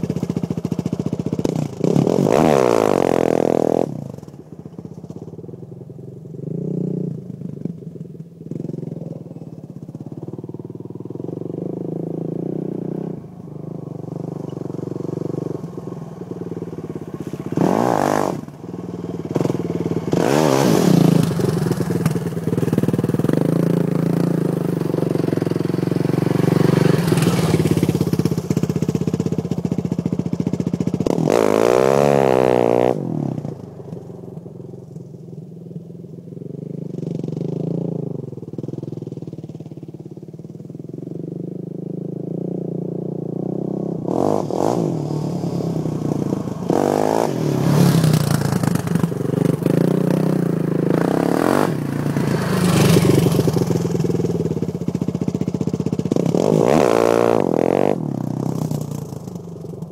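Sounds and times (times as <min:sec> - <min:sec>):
quad engine revving: 0:00.0 - 0:04.3, 0:13.9 - 0:33.6, 0:43.4 - 0:59.9
wheels spinning throwing dirt: 0:14.1 - 0:32.5, 0:44.3 - 0:59.9.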